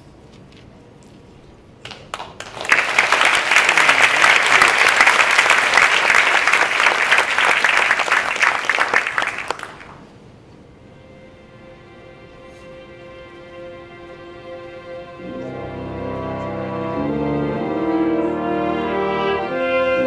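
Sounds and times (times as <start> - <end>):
audience applauding: 1.8 - 10.1
faint band held notes: 10.8 - 20.0.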